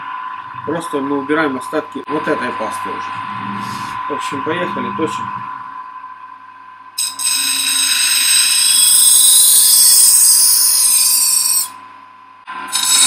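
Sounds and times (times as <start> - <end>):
knife grinding on wheel: 7.0 - 11.7, 12.7 - 13.0.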